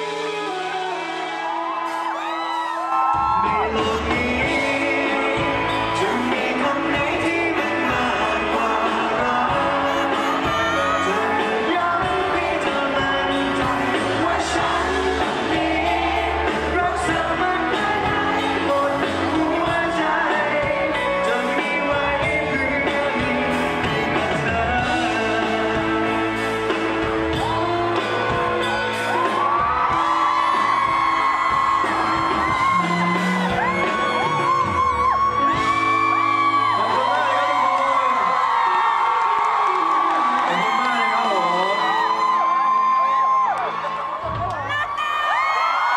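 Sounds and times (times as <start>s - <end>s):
fans yelling and whooping: 0.0s - 45.9s
live pop-rock band: 0.0s - 45.9s
man singing: 3.2s - 42.8s
crowd singing along: 3.5s - 37.2s.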